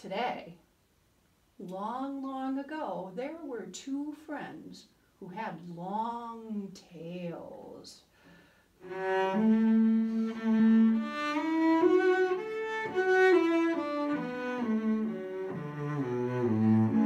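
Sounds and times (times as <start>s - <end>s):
solo cello bowed melody: 8.8s - 17.0s.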